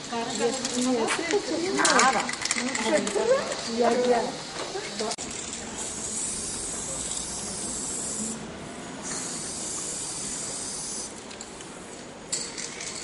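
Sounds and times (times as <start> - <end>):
spray paint can hissing: 5.2 - 11.4.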